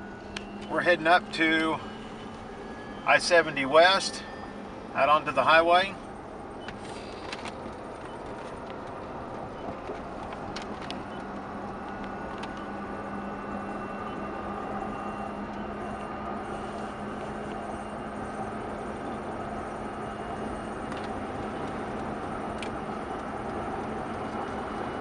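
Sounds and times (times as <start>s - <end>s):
road and tyre noise: 0.0s - 25.0s.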